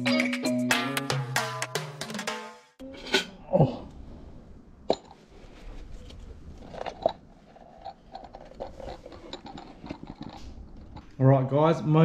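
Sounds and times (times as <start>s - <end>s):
rustling and scraping: 4.9s - 11.2s.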